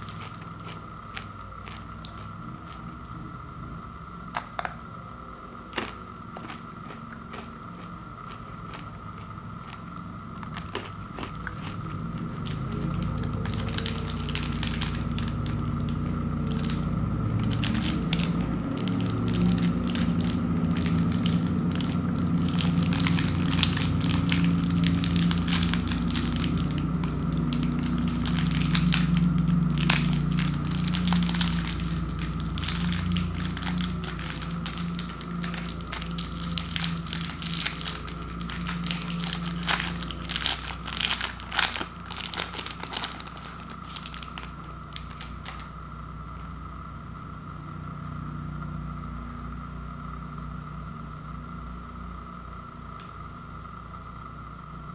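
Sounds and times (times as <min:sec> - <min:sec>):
plastic wrapper crinkling: 0:00.0 - 0:00.8, 0:10.8 - 0:45.7
steady low hum: 0:00.0 - 0:54.9.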